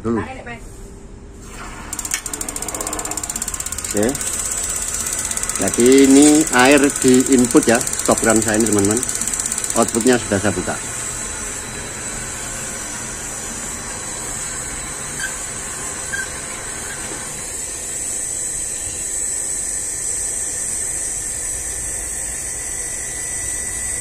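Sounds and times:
water rushing through hoses: 1.4 - 3.1.

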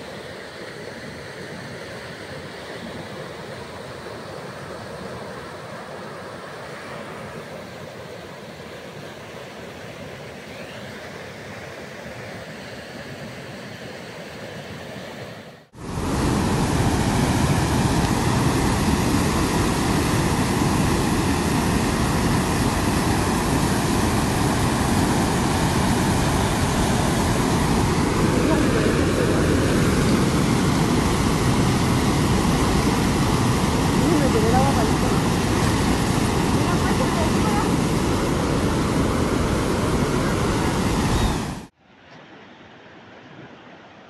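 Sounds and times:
river rushing in flood: 11.0 - 42.0.

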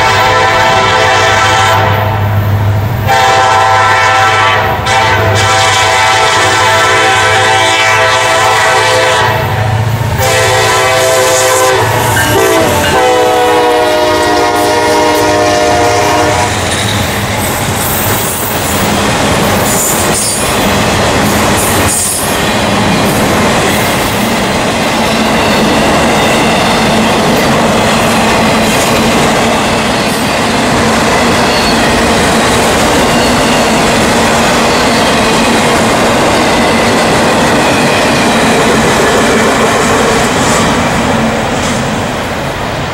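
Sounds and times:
locomotive horn blowing: 0.0 - 2.3, 3.0 - 16.6
train wheels clickety-clack: 11.8 - 42.6.

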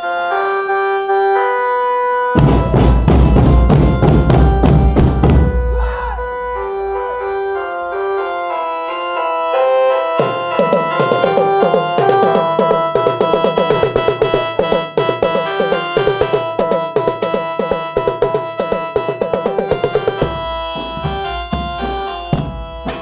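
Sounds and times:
keyboard melody through loudspeaker: 0.0 - 23.0
loud bass drum hits: 2.4 - 5.7
marching tenor drums: 2.4 - 5.9, 10.2 - 23.0.

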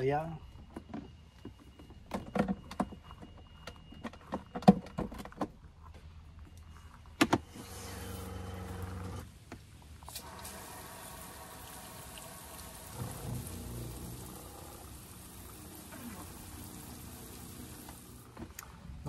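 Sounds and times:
water pump electric hum: 7.4 - 9.4, 10.0 - 18.8.

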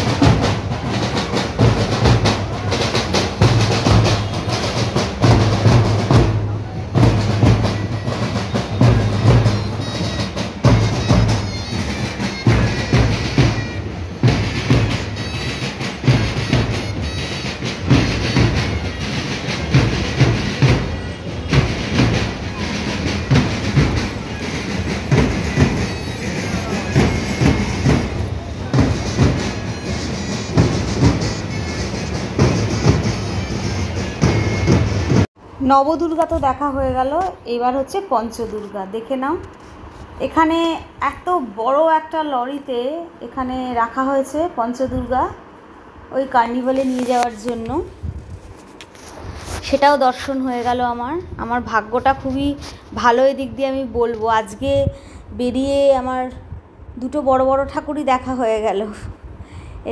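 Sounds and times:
bass drums: 0.0 - 35.3
snare drums: 0.0 - 35.3
crowd noise: 0.0 - 35.6.

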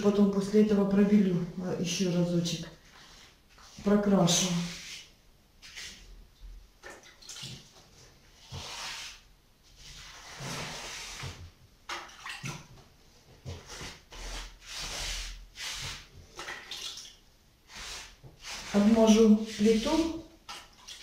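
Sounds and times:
wet mortar scraping by hand: 8.3 - 11.4, 13.5 - 16.4, 17.7 - 20.3.

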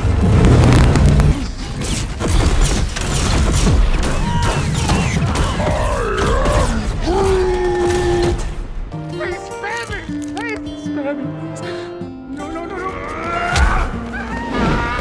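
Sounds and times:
rapid gunfire: 0.6 - 5.8.

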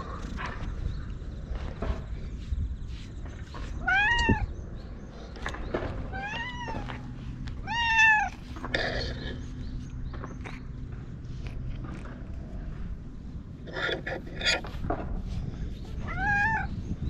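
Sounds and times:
cat meowing: 3.7 - 4.5, 6.1 - 8.4, 16.0 - 16.7.

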